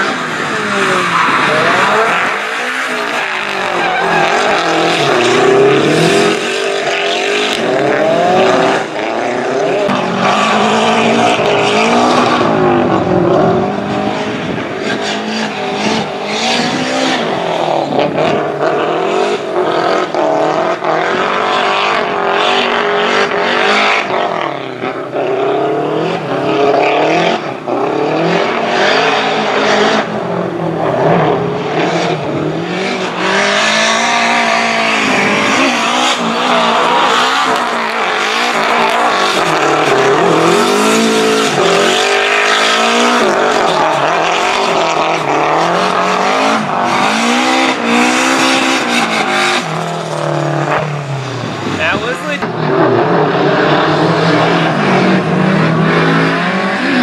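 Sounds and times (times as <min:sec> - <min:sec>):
car engine revving hard: 0:00.0 - 0:57.0.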